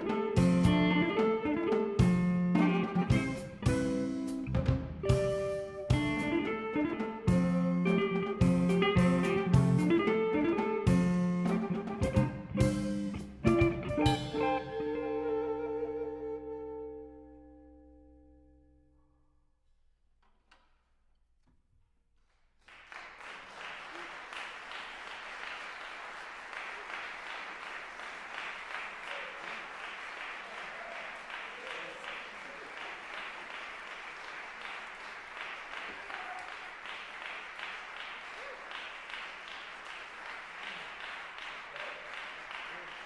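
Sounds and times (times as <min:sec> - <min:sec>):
audience clapping: 0:22.2 - 0:43.0.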